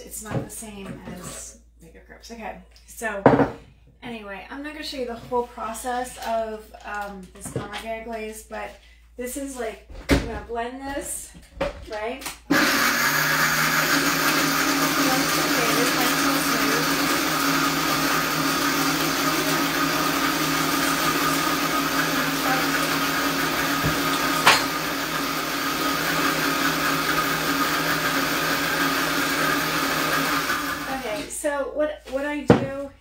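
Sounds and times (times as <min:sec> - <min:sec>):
blender running: 0:12.5 - 0:31.3.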